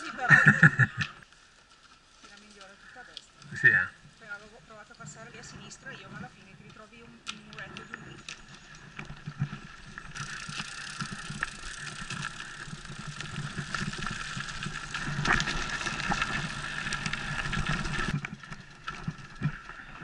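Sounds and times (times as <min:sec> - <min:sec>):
bike tyres on dirt and gravel: 0:00.0 - 0:20.0
bike rattling over bumps: 0:04.2 - 0:20.0.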